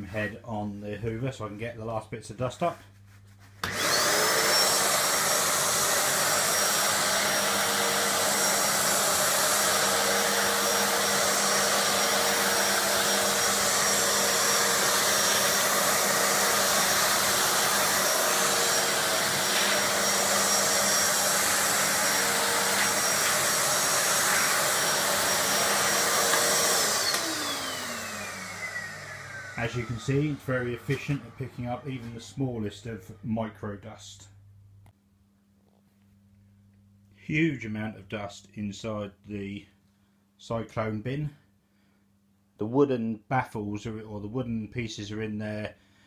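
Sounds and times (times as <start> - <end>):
shop vac motor whining: 3.6 - 33.5
vacuum sucking sawdust: 3.6 - 33.5.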